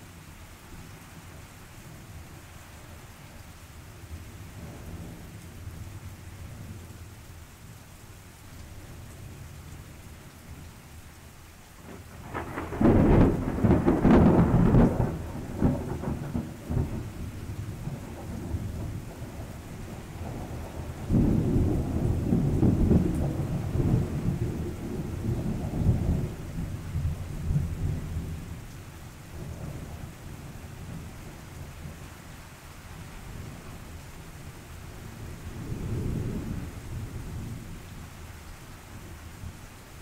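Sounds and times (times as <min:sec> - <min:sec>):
steady rain: 0:00.0 - 0:40.0
thunder rumbling: 0:11.8 - 0:28.6, 0:34.9 - 0:38.0.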